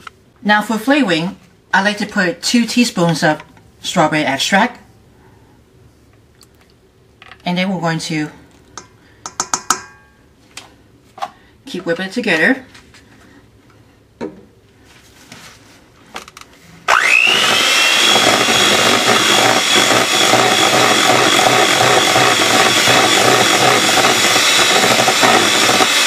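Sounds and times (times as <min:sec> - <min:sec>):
electric hand mixer whining: 0:16.9 - 0:26.0.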